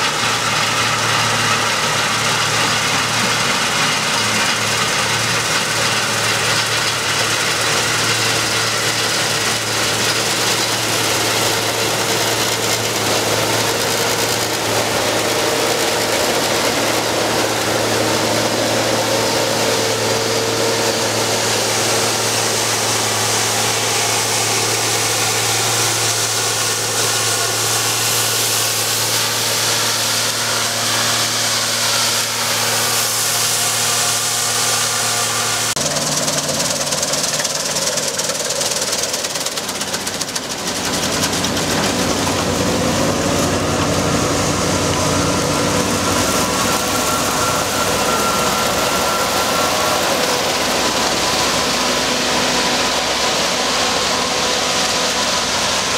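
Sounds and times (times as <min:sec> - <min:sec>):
broad rushing noise: 0:00.0 - 0:55.9
combine harvester diesel engine hum: 0:00.0 - 0:55.9.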